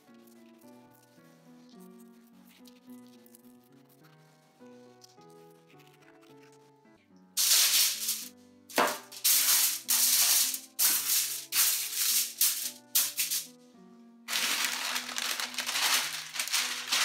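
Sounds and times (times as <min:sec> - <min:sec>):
soft background music: 0:00.0 - 0:17.0
aluminium foil crinkling: 0:07.4 - 0:13.5, 0:14.3 - 0:17.0.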